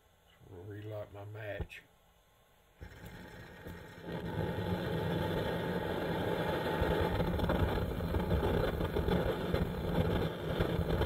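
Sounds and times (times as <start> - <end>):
stove flame rushing: 2.8 - 11.0.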